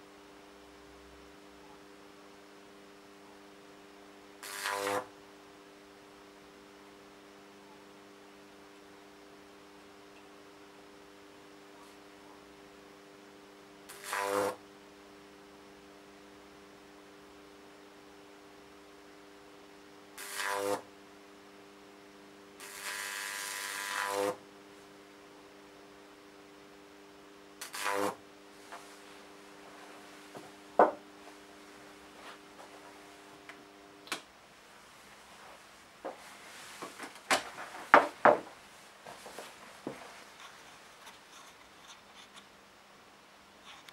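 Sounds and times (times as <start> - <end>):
steady hum: 0.0 - 43.9
electric arc buzzing: 4.3 - 5.2, 13.8 - 14.6, 20.1 - 21.1, 22.3 - 24.6, 27.4 - 34.2
sharp knocks on workbench: 30.8 - 31.0, 37.9 - 38.5
faint taps and rubs: 36.0 - 42.5.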